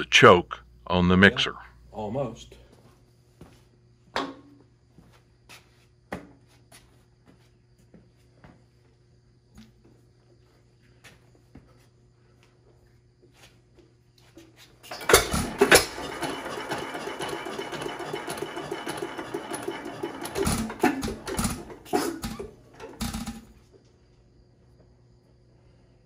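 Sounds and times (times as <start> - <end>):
engine clattering: 14.9 - 23.4.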